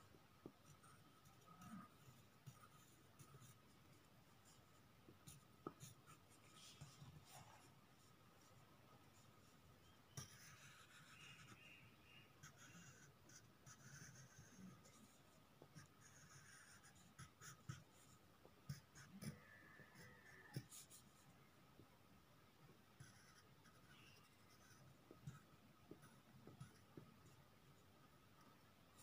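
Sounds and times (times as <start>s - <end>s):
pen scratching on paper: 0.6s - 4.6s, 9.2s - 21.0s, 23.0s - 27.4s.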